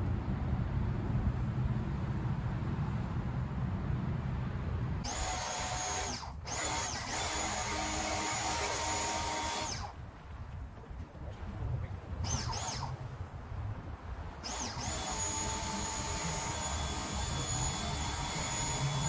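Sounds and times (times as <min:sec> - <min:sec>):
pressure washer motor whine: 0:05.0 - 0:10.0, 0:12.2 - 0:13.4, 0:14.3 - 0:19.0.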